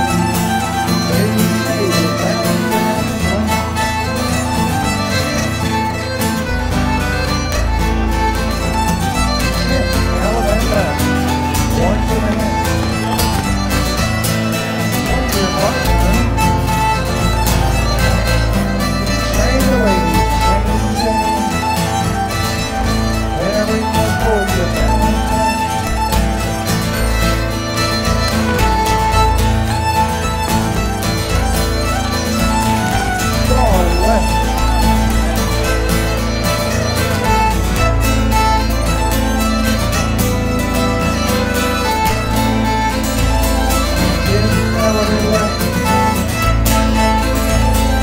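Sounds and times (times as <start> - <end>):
baritone guitar: 0.0 - 48.0
bowed keyed fiddle tune: 0.0 - 48.0.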